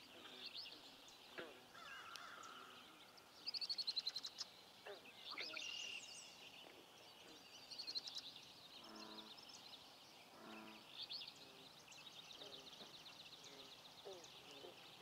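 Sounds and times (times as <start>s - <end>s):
songbird chorus: 0.0s - 15.0s.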